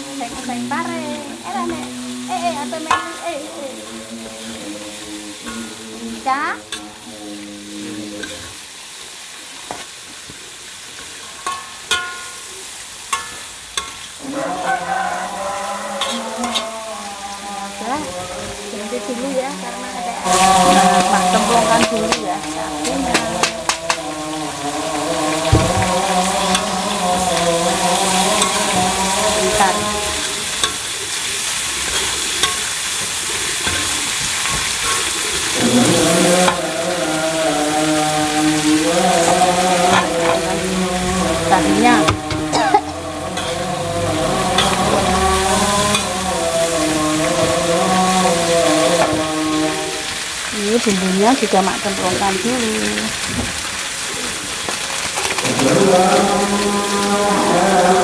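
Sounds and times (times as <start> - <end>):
vegetables sizzling in oil: 0.0 - 58.0
metal spatula scraping pan: 0.2 - 8.6, 13.1 - 37.2, 38.6 - 50.2
spatula clinking on wok: 11.4 - 12.4
spatula clicking against pan: 23.1 - 24.1.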